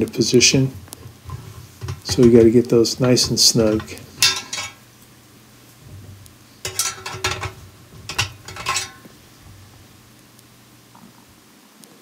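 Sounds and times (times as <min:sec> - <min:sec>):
allen wrench clinking on metal drum: 0:01.0 - 0:04.9, 0:06.6 - 0:09.7.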